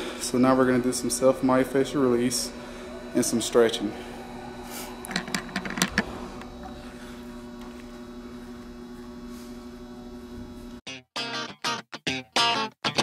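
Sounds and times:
electrical hum: 0.0s - 10.8s
strummed guitar music: 10.9s - 13.0s.

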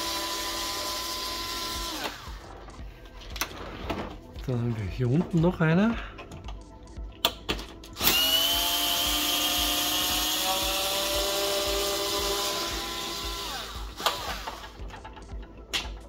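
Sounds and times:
electric drill motor running: 0.0s - 2.5s, 8.0s - 14.9s.

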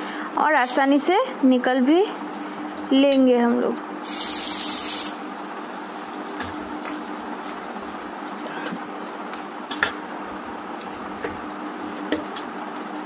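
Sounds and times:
fish frying in hot oil: 4.0s - 13.0s.

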